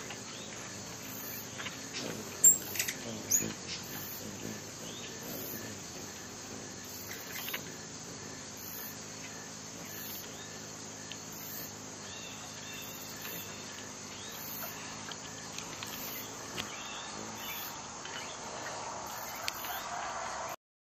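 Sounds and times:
insect chirping: 0.0 - 20.6
steady low hum: 0.0 - 20.6
bird calls: 12.0 - 20.0.

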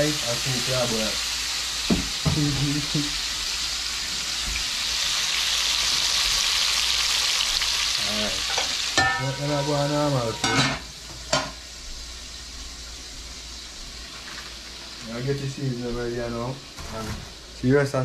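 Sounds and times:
fish sizzling in a pan: 0.0 - 18.0
metal lid clanking on pan: 8.5 - 11.6.

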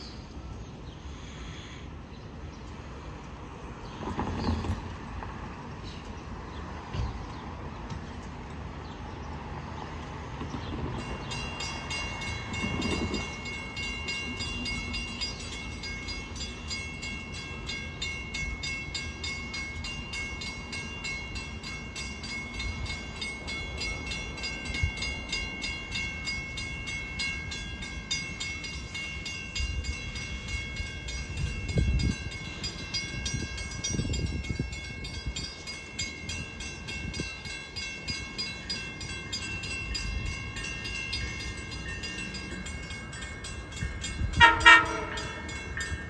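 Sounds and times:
railroad crossing bells ringing: 0.0 - 1.1, 1.9 - 46.0.

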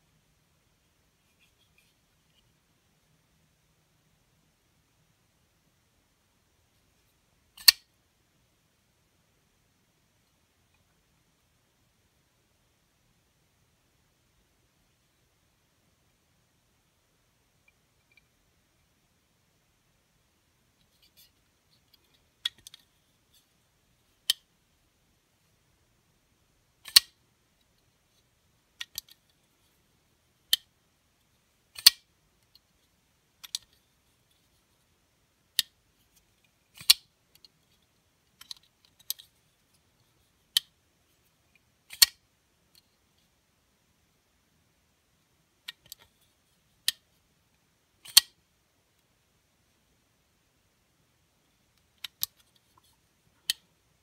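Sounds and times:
knife blade clicking open and shut: 7.6 - 7.8, 26.8 - 27.1, 31.8 - 32.0, 41.9 - 42.2, 48.0 - 48.3.

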